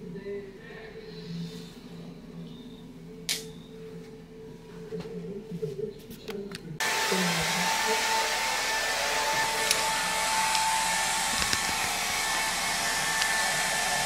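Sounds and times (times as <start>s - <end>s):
electric blower rushing air: 6.8s - 14.0s.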